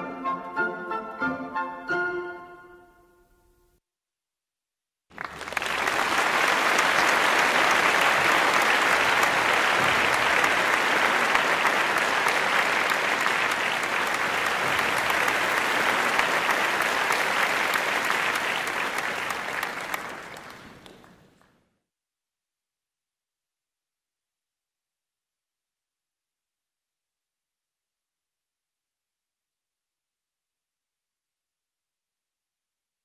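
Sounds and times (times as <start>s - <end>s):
audience applauding: 5.1s - 21.6s.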